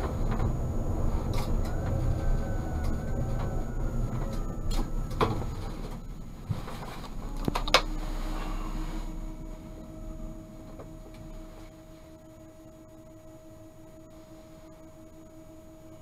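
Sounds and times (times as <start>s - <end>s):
tram electrical hum: 0.0s - 16.0s
tram running noise: 0.0s - 16.0s
faint high tone: 7.2s - 12.3s.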